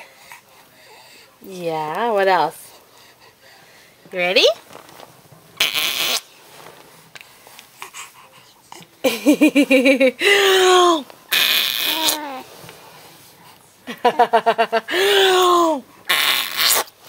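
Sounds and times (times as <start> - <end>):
raspberries blown on skin: 16.1 - 17.0.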